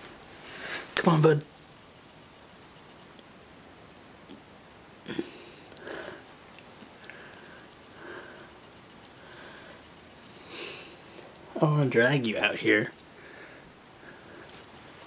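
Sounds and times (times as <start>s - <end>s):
soft sniffs: 10.3s - 11.3s.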